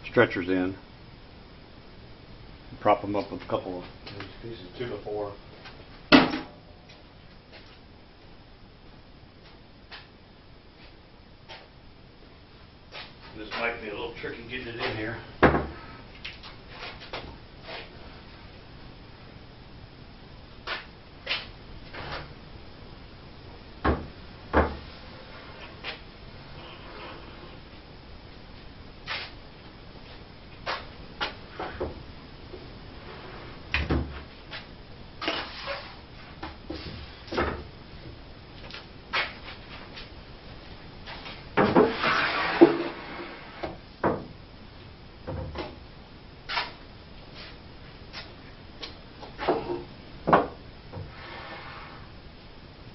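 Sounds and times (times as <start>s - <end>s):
wood scraping on wood: 41.1s - 43.7s.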